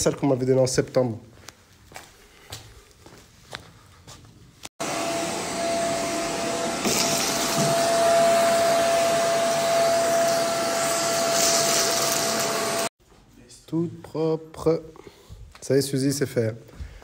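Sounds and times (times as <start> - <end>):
vacuum cleaner running: 4.8 - 12.9.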